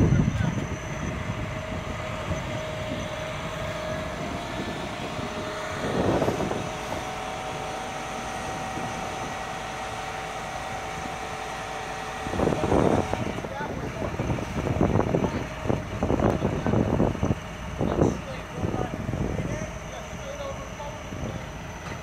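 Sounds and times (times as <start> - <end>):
crane hydraulics whining: 0.0 - 22.0.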